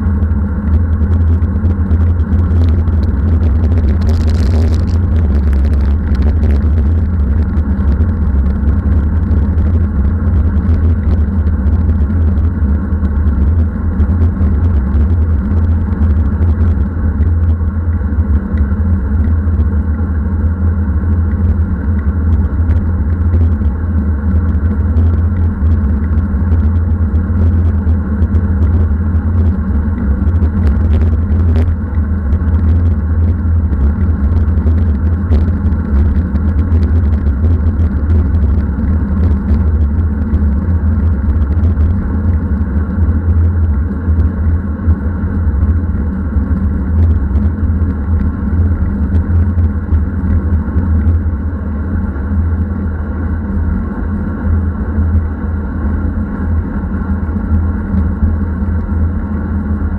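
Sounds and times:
wind buffeting microphone: 0.0 - 17.7.

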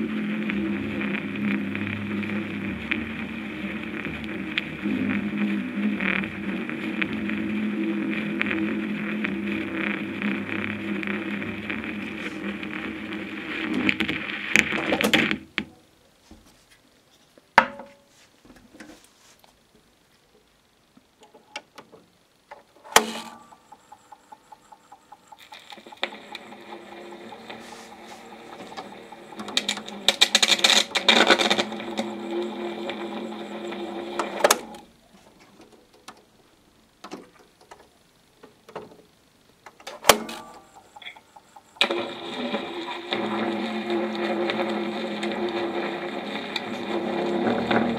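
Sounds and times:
mechanical buzz of disc recorder: 0.0 - 15.6, 20.6 - 47.9
small electric motor humming: 23.0 - 34.9.

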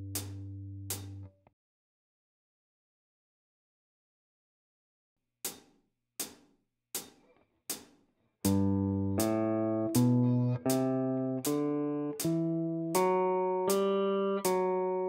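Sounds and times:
electric guitar playing a scale: 8.5 - 15.0
click track ticks: 9.2 - 14.6.

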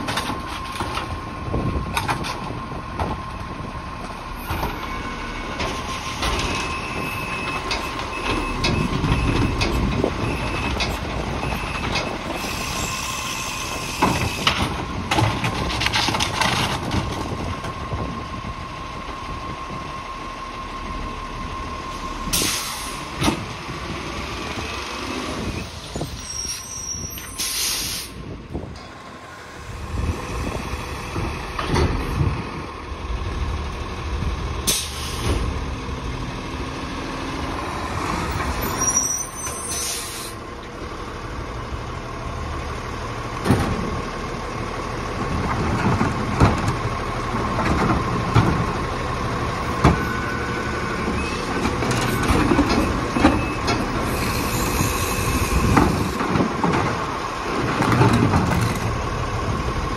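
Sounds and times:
air brake hisses: 12.4 - 14.5, 22.3 - 23.1, 26.4 - 28.2, 34.7 - 35.4, 39.6 - 40.4
garbage truck engine running: 26.9 - 59.9.

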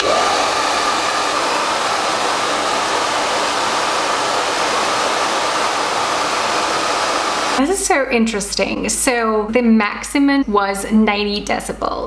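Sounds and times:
hair dryer blowing: 0.0 - 7.8.

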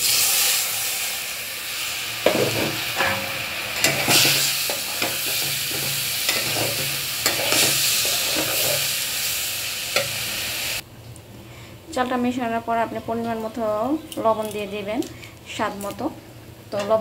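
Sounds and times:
rice sizzling in oil: 0.0 - 10.8
metal spatula scraping pot: 2.2 - 9.0.

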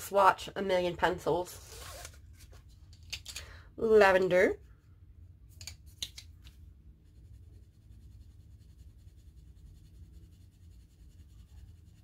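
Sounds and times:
colored pencil scratching on paper: 7.0 - 12.0.

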